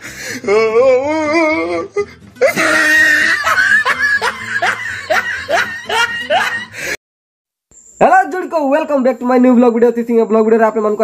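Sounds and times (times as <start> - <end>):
music: 0.0 - 7.0
person wavering cry: 0.4 - 6.8
person laughing: 2.4 - 6.8.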